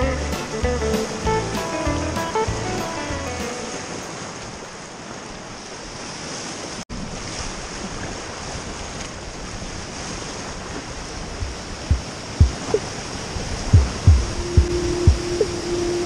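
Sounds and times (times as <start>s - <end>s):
rushing whitewater: 0.0s - 16.0s
wind on microphone: 6.9s - 16.0s
low thuds: 11.9s - 12.8s, 13.7s - 15.6s.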